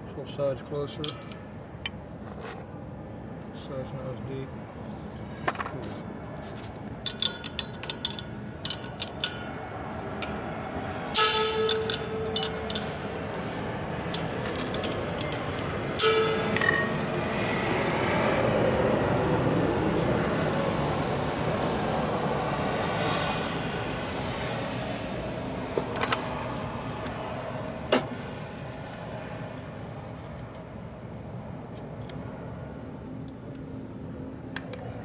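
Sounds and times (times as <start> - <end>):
bright metallic ringing: 7.0 - 17.8
metallic clicks of hand tools: 7.1 - 9.5, 11.2 - 13.0.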